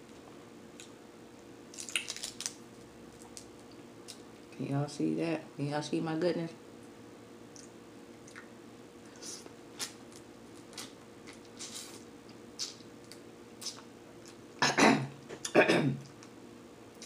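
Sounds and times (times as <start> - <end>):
crab shell crackling: 1.7 - 4.3.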